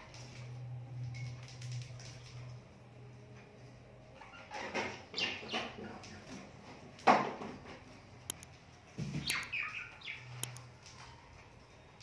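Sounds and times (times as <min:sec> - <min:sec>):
budgerigar chirping: 0:09.2 - 0:10.3.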